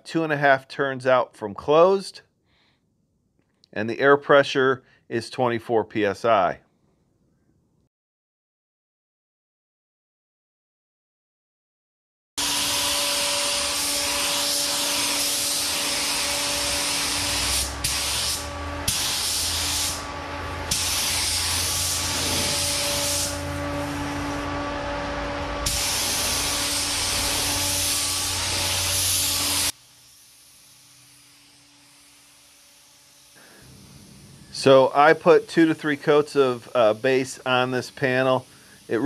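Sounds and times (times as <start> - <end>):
spray gun air hiss: 12.5 - 24.5, 25.6 - 39.0.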